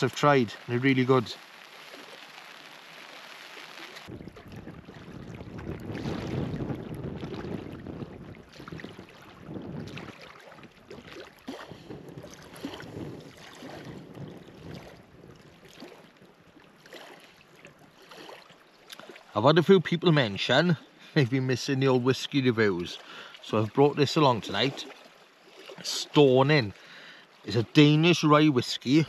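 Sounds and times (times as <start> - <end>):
gusty wind on microphone: 4.0 - 16.4.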